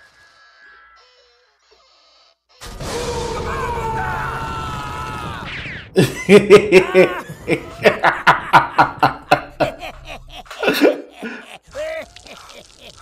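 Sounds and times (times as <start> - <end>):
man laughing hard: 6.0 - 13.0.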